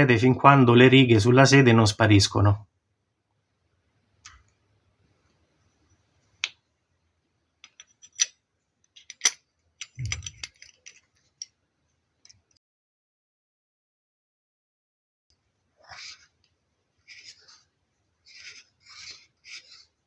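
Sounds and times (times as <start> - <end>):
metal clicks and scrapes: 7.6 - 11.5.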